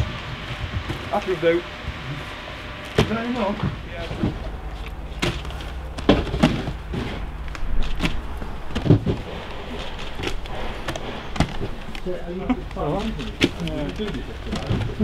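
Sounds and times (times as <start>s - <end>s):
cardboard parcels thumping: 2.8s - 12.0s, 12.8s - 15.0s.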